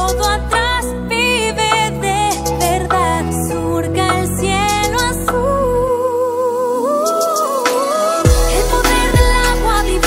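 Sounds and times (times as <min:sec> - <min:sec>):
bass and instrument backing: 0:00.0 - 0:06.0, 0:08.2 - 0:10.0
woman singing with vibrato: 0:00.0 - 0:10.0.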